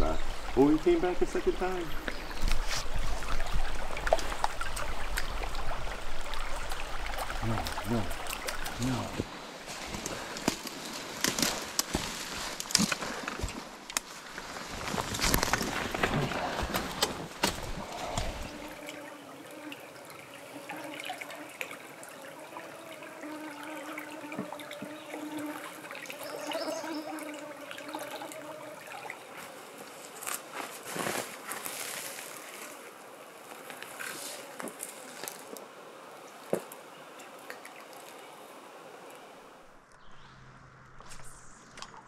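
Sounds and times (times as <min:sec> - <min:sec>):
brook trickling and babbling: 0:00.0 - 0:10.4, 0:17.8 - 0:30.0, 0:36.2 - 0:39.2.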